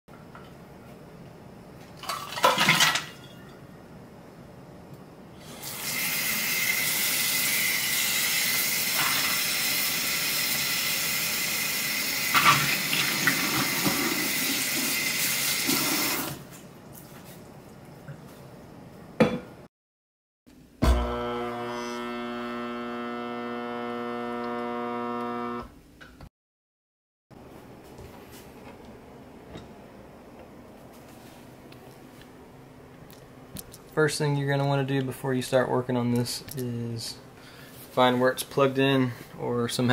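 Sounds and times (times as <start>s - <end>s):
faucet running water into sink: 5.6s - 16.4s.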